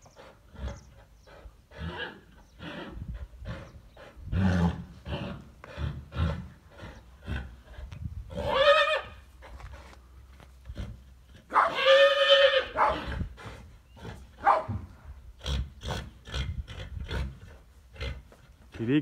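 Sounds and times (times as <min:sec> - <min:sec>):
horses grunting and snorting: 0:00.0 - 0:19.0
horse squealing: 0:08.3 - 0:09.2, 0:11.5 - 0:13.3.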